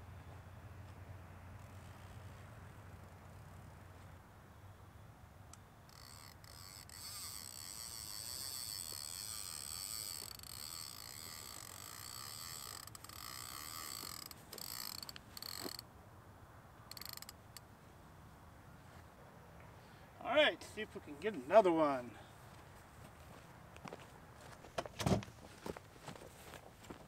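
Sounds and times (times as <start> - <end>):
fishing reel gears whirring: 5.9 - 15.8, 16.9 - 17.6.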